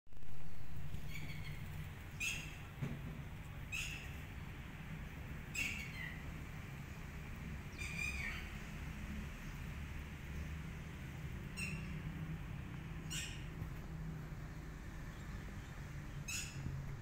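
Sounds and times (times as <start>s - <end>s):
bird chirping: 0.9s - 2.7s, 3.7s - 4.2s, 5.5s - 6.3s, 7.7s - 8.6s, 11.5s - 12.1s, 13.0s - 13.5s.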